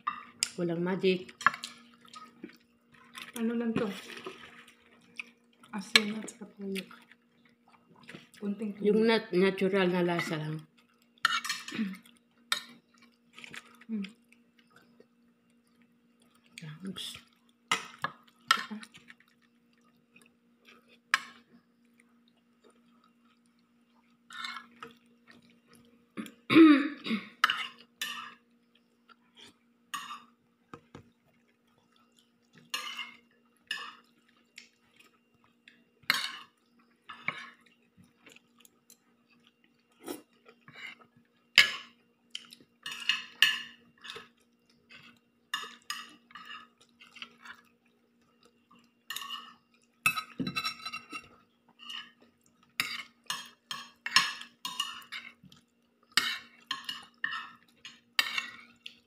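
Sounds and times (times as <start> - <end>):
faint steady hum: 0.0 - 59.0
chewing: 4.0 - 5.7, 10.8 - 26.4, 31.0 - 50.4, 51.0 - 59.0
utensils clinking on plates: 49.1 - 52.2.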